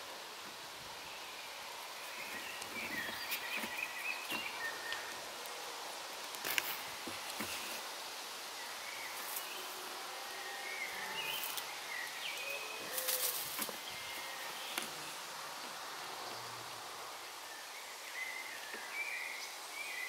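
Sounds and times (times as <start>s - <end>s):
steady woodland hiss: 0.0s - 20.0s
dry leaves and twigs crackling: 1.8s - 15.8s.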